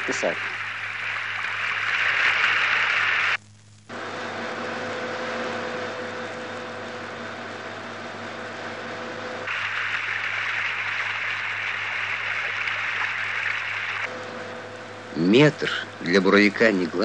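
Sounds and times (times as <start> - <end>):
loud hiss: 0.0 - 3.4, 9.5 - 14.1
steady hum tones: 0.0 - 17.0
drilling rig machinery noise: 6.4 - 17.0.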